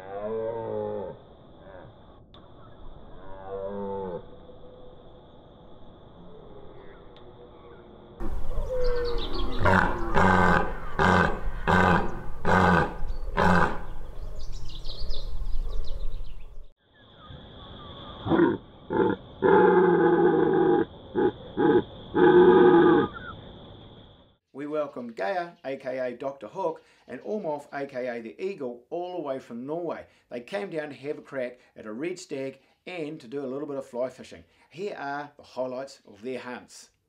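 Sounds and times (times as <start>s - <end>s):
deer stags roaring: 3.1s - 4.3s, 8.2s - 14.1s, 18.3s - 23.3s.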